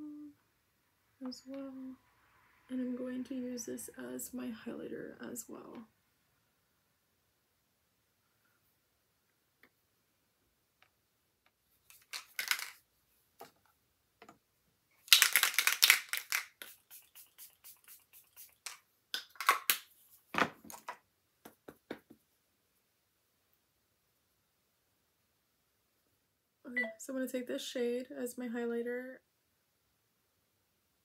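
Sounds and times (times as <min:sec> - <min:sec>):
makeup containers clattering: 0:11.9 - 0:12.8.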